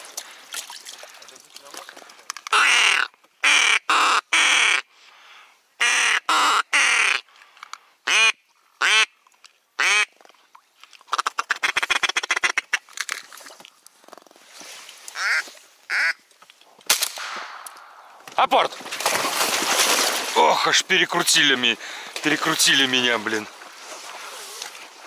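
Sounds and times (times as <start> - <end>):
duck quacking: 15.2 - 16.2.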